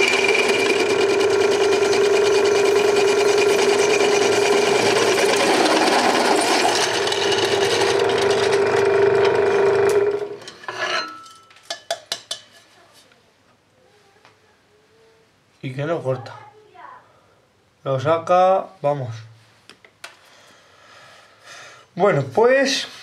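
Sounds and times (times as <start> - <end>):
drill press cutting steel: 0.0 - 11.2.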